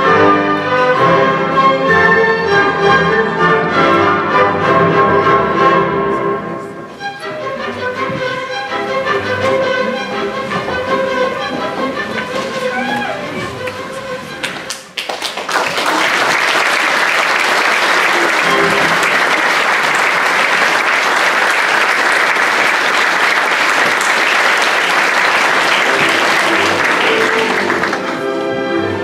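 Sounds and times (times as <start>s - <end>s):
audience applause: 14.4s - 28.3s.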